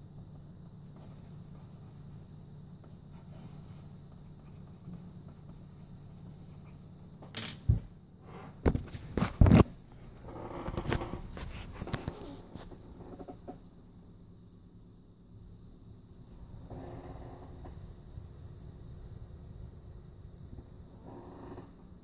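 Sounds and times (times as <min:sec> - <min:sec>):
pencil scratching on paper: 0:00.8 - 0:07.0.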